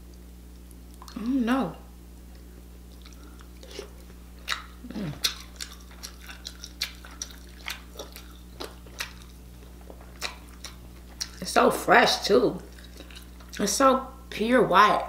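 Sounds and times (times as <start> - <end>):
steady low hum: 0.0 - 15.0
low vocal hum: 1.0 - 2.0, 4.7 - 11.2
wet mouth smacks while eating: 2.3 - 11.4.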